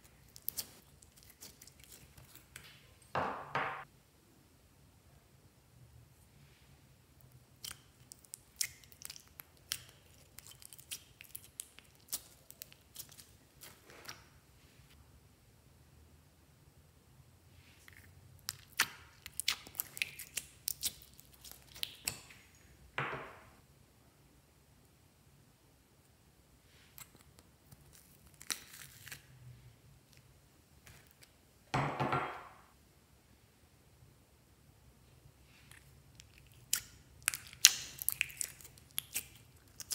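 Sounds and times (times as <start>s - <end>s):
sticky slime crackles: 0.0s - 2.6s, 7.5s - 14.3s, 17.8s - 22.5s, 26.9s - 29.4s, 35.7s - 39.9s
slime clicking and popping: 36.5s - 39.9s.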